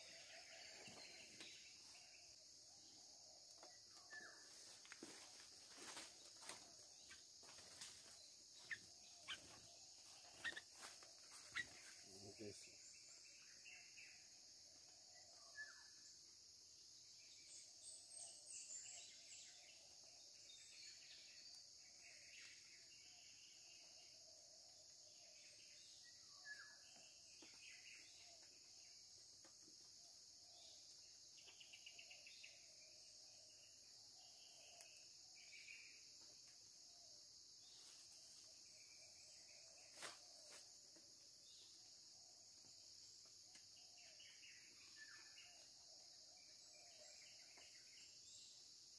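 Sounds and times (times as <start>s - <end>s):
high-pitched insect chorus: 0.0s - 48.9s
bird chirps: 7.0s - 14.3s.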